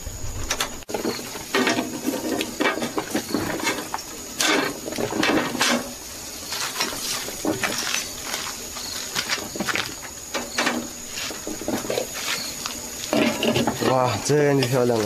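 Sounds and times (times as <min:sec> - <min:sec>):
wire grill grate scraping and rattling: 0:00.0 - 0:15.0.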